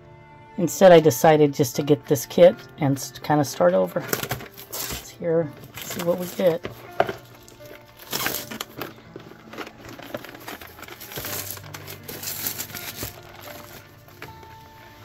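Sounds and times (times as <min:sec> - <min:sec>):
plastic shrink-wrap crinkling: 0:04.0 - 0:15.0.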